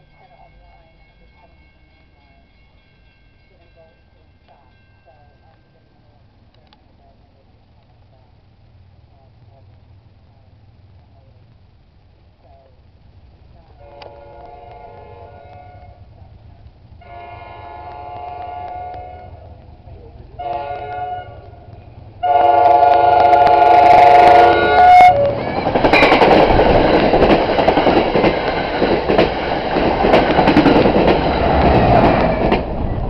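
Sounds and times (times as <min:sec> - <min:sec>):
train wheels rushing on rails: 0:13.3 - 0:33.0
train air horn blasts: 0:13.8 - 0:16.1, 0:17.0 - 0:19.5, 0:20.4 - 0:26.2
wheels clacking over rail joints: 0:24.7 - 0:33.0.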